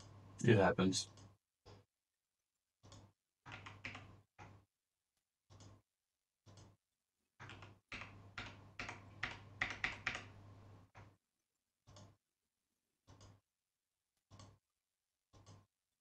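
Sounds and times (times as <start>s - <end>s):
keyboard and mouse clicking: 2.8s - 4.6s, 5.5s - 5.8s, 6.5s - 6.8s, 7.4s - 10.4s, 11.8s - 12.2s, 13.0s - 13.4s, 14.3s - 14.6s, 15.3s - 15.7s.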